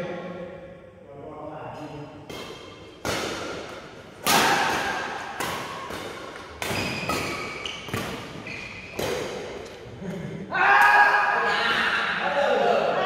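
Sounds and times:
racket hitting shuttlecock: 2.3 - 9.8
shoes squeaking on court: 6.6 - 9.6.

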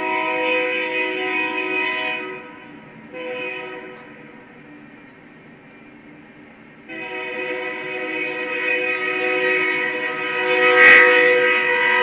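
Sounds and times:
locomotive air horn blast: 0.0 - 4.3, 6.9 - 12.0.

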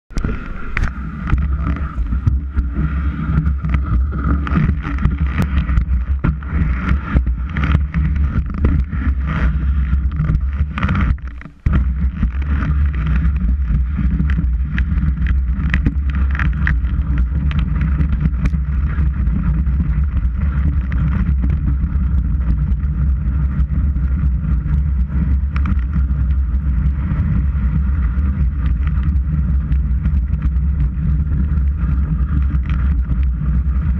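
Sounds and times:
skis scraping over snow: 0.1 - 33.9
knocks and clatters: 3.4 - 22.8.

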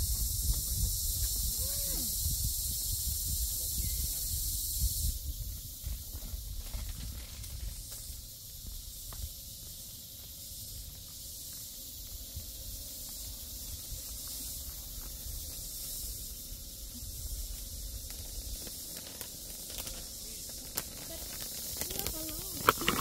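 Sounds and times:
wind rumble on microphone: 0.0 - 9.3
insects droning: 0.0 - 23.0.

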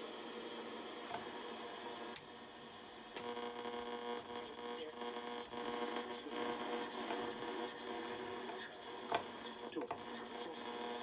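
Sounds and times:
radio loudspeaker buzzing hum: 0.0 - 11.0.

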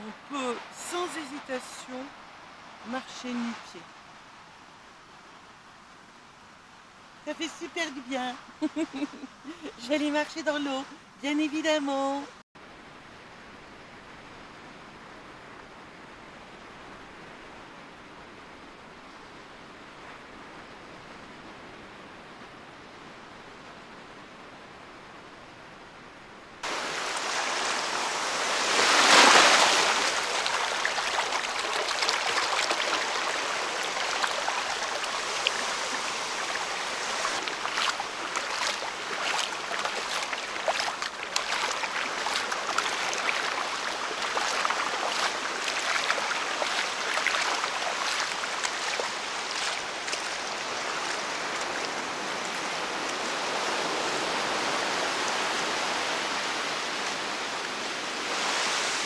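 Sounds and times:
surf washing over sand: 26.6 - 59.0
feet splashing in water: 28.7 - 52.0.

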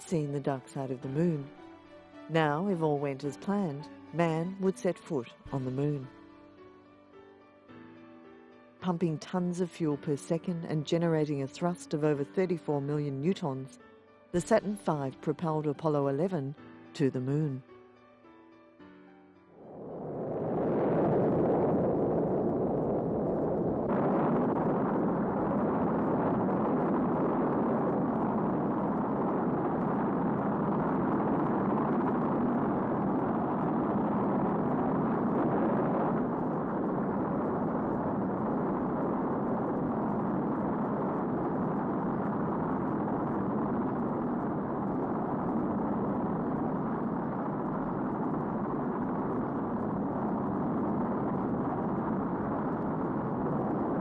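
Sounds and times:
rocket engines roaring: 19.6 - 54.0.

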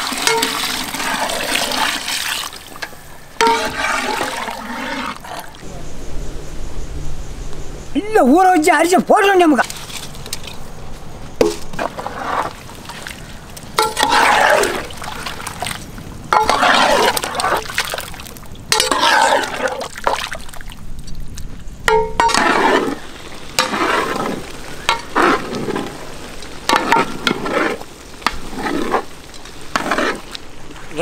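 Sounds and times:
ladle stirring in metal pot: 0.0 - 5.6, 13.8 - 15.7, 16.3 - 20.3, 21.9 - 30.4.

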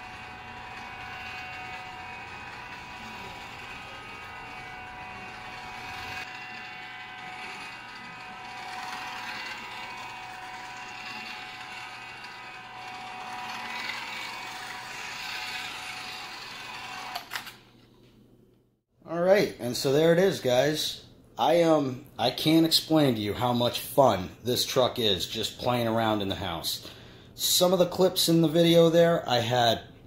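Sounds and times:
electric motor and gearbox whining: 0.0 - 17.7.

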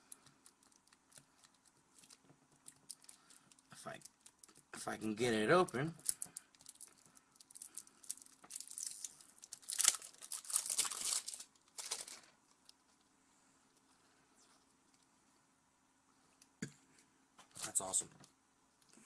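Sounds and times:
cellophane wrapper crinkling and tearing: 0.0 - 13.0.

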